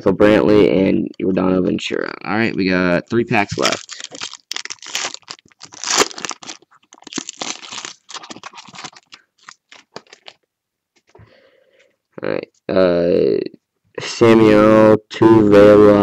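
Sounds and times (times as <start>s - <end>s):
foil wrapper tearing and crinkling: 3.4s - 10.4s.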